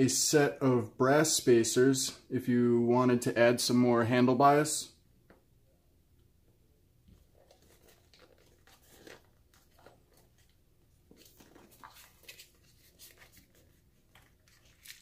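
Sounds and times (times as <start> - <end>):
small handling taps and rustles: 7.0 - 15.0.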